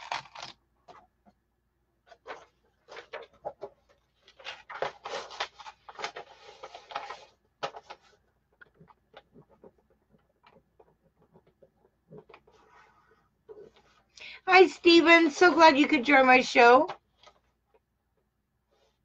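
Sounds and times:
scratchy rustling: 0:02.1 - 0:14.1.

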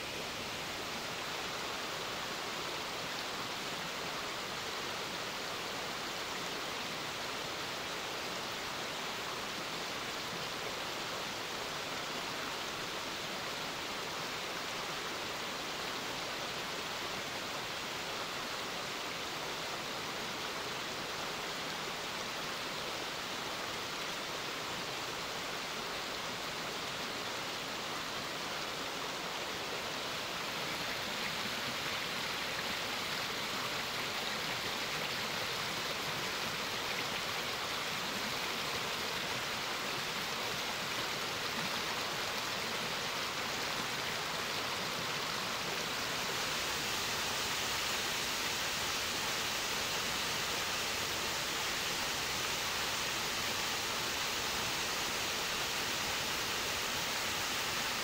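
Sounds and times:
waterfall rushing: 0:25.0 - 0:58.0.

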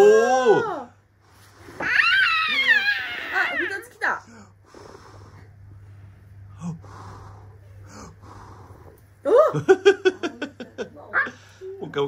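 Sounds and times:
soft breathy puffs: 0:04.3 - 0:09.1.

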